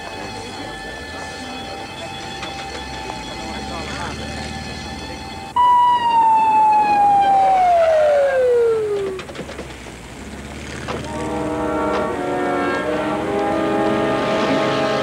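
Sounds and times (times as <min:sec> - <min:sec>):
ambulance siren winding down: 0:00.0 - 0:09.4.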